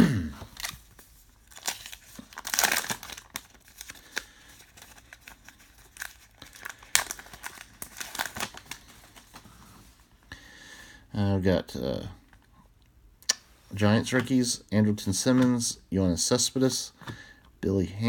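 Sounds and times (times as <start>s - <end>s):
plastic wrapper crinkling and tearing: 0.4s - 9.5s
cards rustling: 0.4s - 9.8s.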